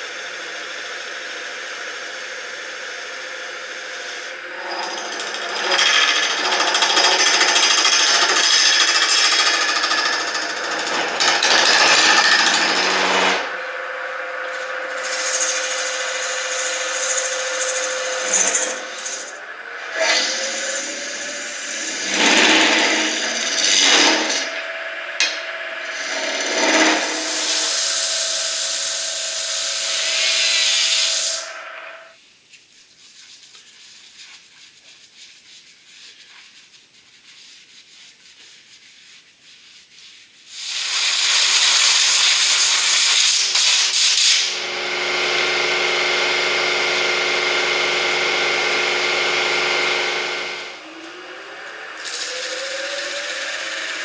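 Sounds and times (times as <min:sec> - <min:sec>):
wood lathe spinning: 0:00.0 - 0:32.2, 0:40.7 - 0:54.0.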